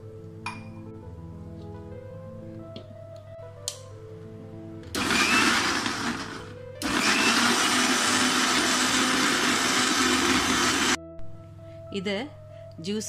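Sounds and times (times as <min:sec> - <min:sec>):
mixer grinder blending: 0:05.0 - 0:11.0.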